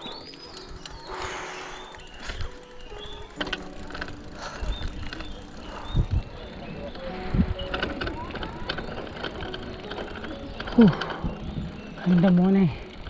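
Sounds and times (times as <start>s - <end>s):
bird chirps: 0.0s - 3.4s, 4.4s - 7.8s
background music: 0.0s - 13.0s
bicycle being ridden: 0.0s - 13.0s.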